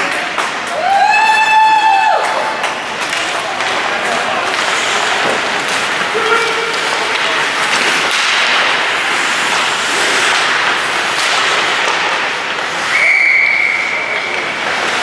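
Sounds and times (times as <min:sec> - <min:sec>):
skates scraping on ice: 0:01.4 - 0:15.0
referee whistle blast: 0:12.9 - 0:14.1.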